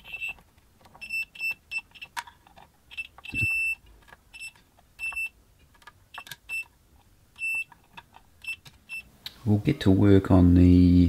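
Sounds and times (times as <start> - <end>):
multimeter short beeps: 2.9 - 3.8
probe clicks: 2.9 - 3.8.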